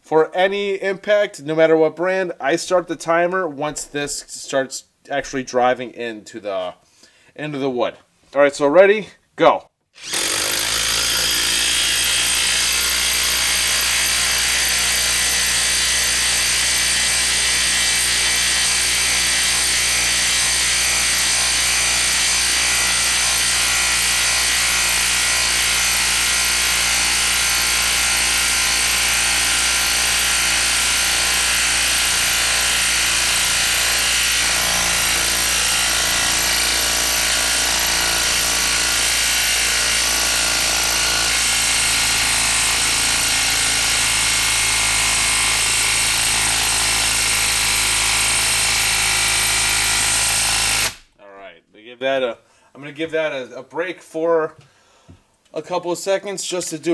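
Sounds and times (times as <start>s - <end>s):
impact driver hammering: 10.0s - 51.0s.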